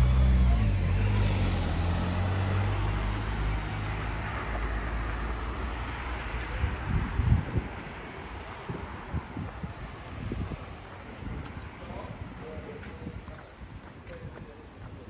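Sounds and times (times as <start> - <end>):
vehicle engine humming: 0.0 - 11.4
street traffic: 0.0 - 15.0.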